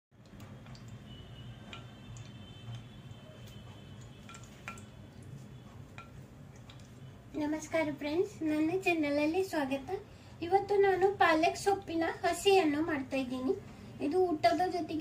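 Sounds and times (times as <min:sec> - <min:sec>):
oil ticking and crackling: 0:00.1 - 0:07.8
low steady hum: 0:00.2 - 0:15.0.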